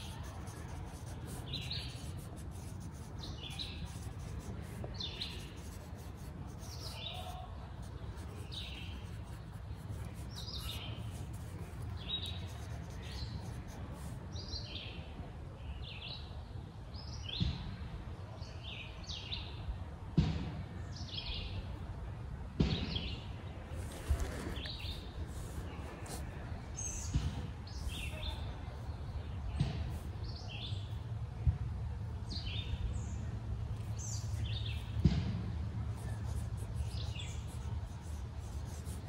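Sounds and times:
small birds chirping: 0:00.0 - 0:15.0, 0:22.8 - 0:31.0, 0:32.2 - 0:35.1, 0:35.9 - 0:39.0
low outdoor rumble: 0:23.4 - 0:39.0.

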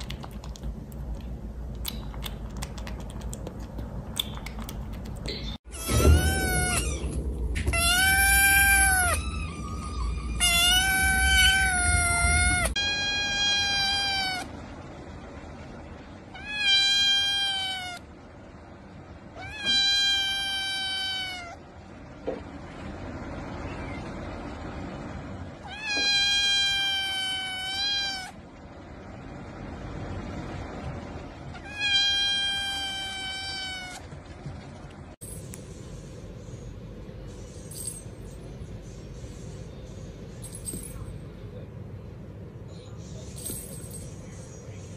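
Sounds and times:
kittens meowing: 0:05.7 - 0:14.5, 0:16.4 - 0:18.0, 0:25.6 - 0:28.4.

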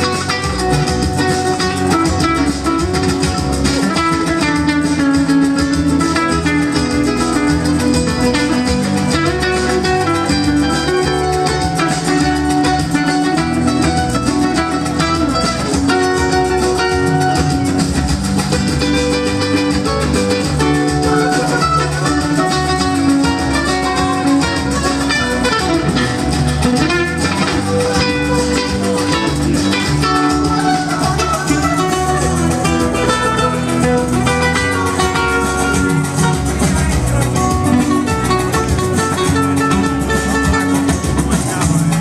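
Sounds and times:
acoustic guitars playing: 0:00.0 - 0:42.0.

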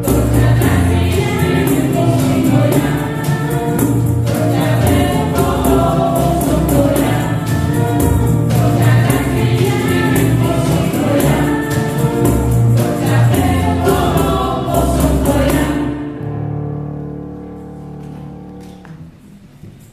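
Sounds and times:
tambourine beat: 0:00.0 - 0:15.9
young voices singing in harmony: 0:00.0 - 0:16.2.

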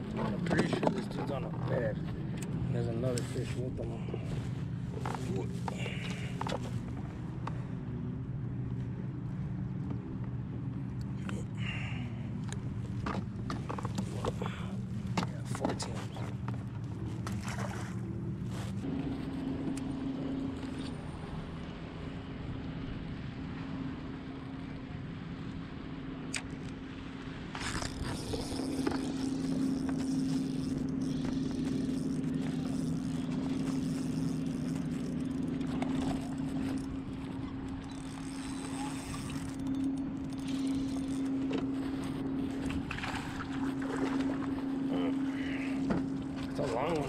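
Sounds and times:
water splashing against hull: 0:00.0 - 0:47.0
motor humming: 0:25.6 - 0:47.0.

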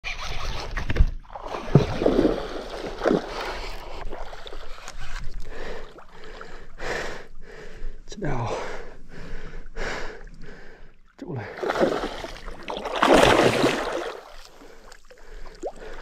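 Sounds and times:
water sloshing and splashing: 0:00.8 - 0:06.5, 0:11.0 - 0:16.0.

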